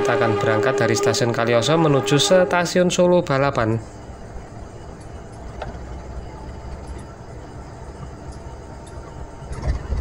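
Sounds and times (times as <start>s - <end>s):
diesel locomotive idling: 0.0s - 10.0s.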